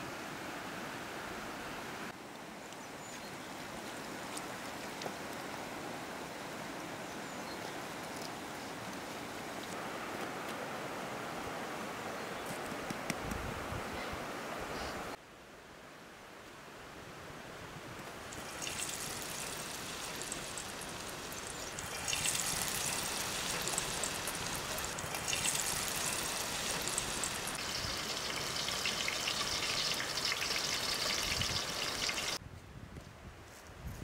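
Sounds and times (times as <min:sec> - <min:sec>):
onions sizzling in hot oil: 0:18.3 - 0:32.4.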